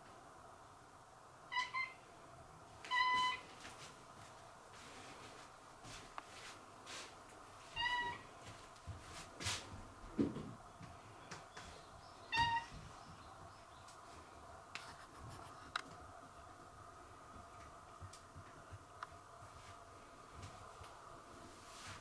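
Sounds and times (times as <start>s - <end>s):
cat meowing: 7.8s - 8.2s, 12.3s - 12.7s.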